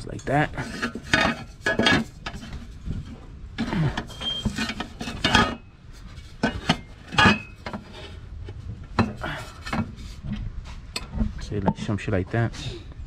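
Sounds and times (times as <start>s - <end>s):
metal tube clinking and scraping: 0.0s - 8.2s, 9.0s - 10.2s.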